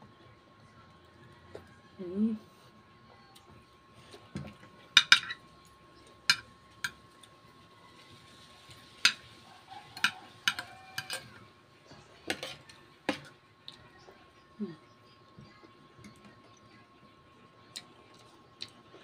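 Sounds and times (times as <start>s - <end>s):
cutlery clinking on ceramic plate: 5.0s - 5.4s, 10.0s - 11.4s.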